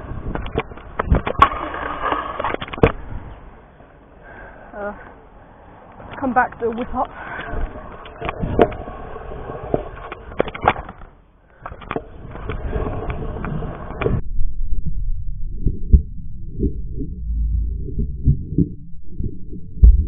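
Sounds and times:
scooter wheels rolling on concrete: 0:00.0 - 0:03.0, 0:05.9 - 0:14.0
scooter deck clacking on ground: 0:00.3 - 0:03.0.

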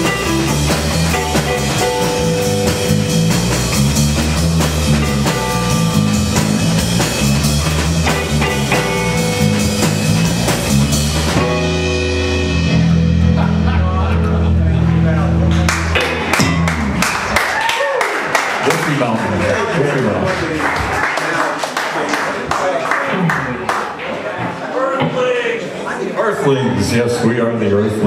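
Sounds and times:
electric bass: 0:00.0 - 0:17.6
electric guitar: 0:00.0 - 0:17.8
drum kit: 0:00.0 - 0:18.3.

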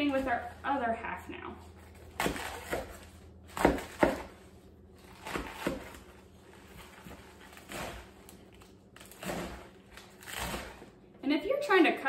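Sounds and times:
knife cutting lettuce on board: 0:01.9 - 0:04.4, 0:05.0 - 0:10.8.

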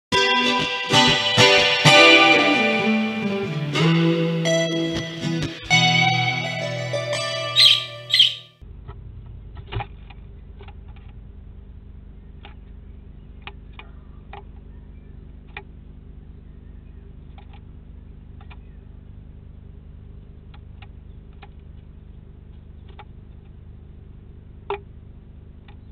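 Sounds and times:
music jingle: 0:00.1 - 0:08.5
short chirps: 0:07.3 - 0:08.5.

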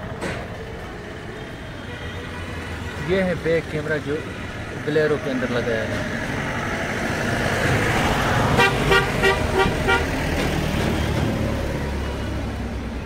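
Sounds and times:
vehicle horn toots: 0:08.6 - 0:10.2.

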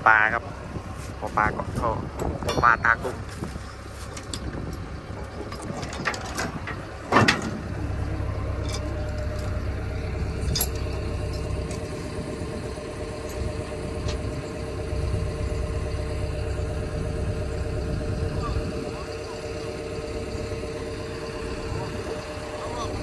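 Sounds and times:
diesel engine running: 0:00.0 - 0:23.0
loud metal clank: 0:02.2 - 0:03.2, 0:05.2 - 0:07.8.

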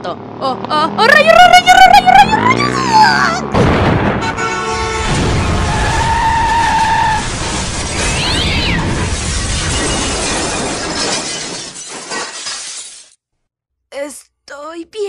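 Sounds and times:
rumbling crash noise: 0:03.5 - 0:11.8
brief falling squeal: 0:05.7 - 0:08.8.

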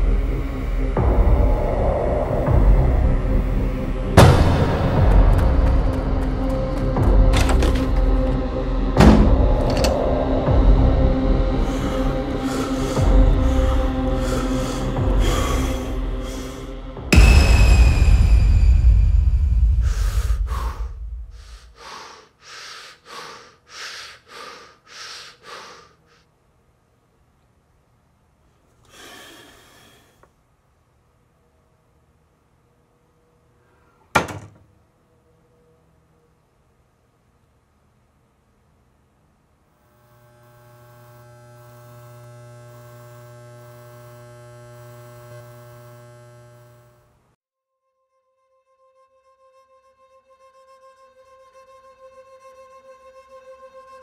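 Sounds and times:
man breathing heavily into hands: 0:11.5 - 0:16.7, 0:19.8 - 0:26.2, 0:28.8 - 0:30.3
deep ringing boom: 0:17.1 - 0:20.3
buzzing electrical hum: 0:39.1 - 0:47.4.

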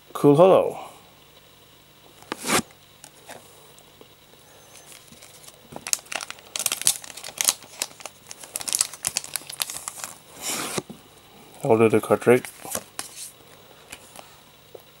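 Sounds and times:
foil wrapper crinkling: 0:04.8 - 0:10.8.

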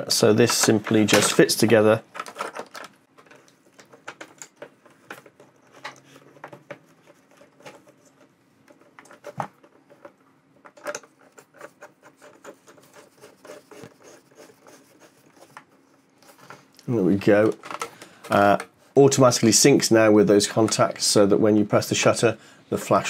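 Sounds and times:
plastic clicks and rattles: 0:00.4 - 0:12.8, 0:17.4 - 0:18.7.

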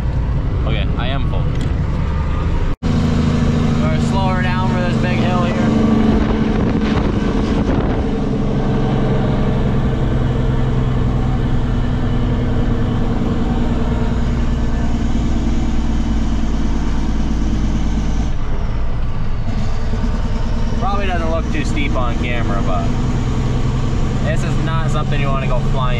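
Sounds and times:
diesel truck engine running: 0:00.0 - 0:25.9.

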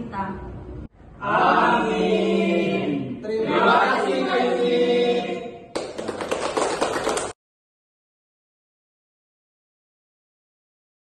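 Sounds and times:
group singing in unison: 0:01.2 - 0:05.7
hand clapping: 0:05.7 - 0:07.4.

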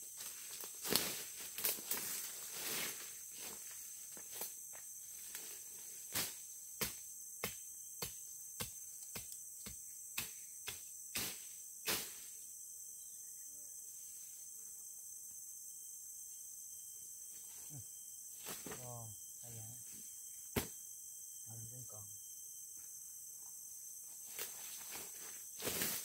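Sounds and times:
crickets chirping: 0:00.0 - 0:26.0.

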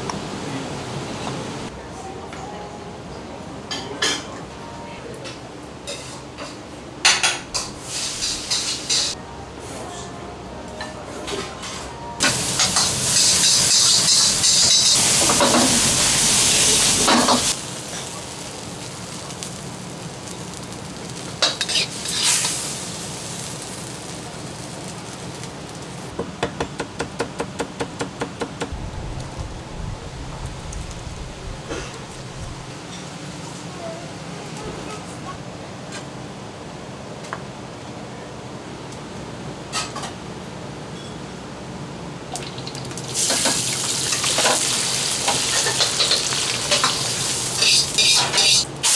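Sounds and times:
stir-fry sizzling in a wok: 0:07.6 - 0:09.2, 0:12.2 - 0:26.1, 0:42.4 - 0:48.9
tableware clinking: 0:45.3 - 0:48.7.

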